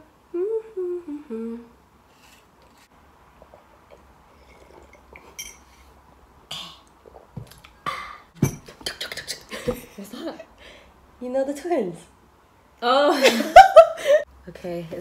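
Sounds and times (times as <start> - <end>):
sipping: 3.2 - 8.3.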